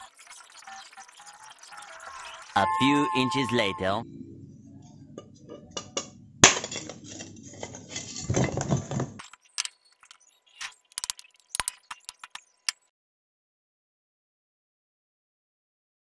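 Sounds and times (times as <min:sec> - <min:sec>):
pot shards clinking together: 0:06.4 - 0:08.9.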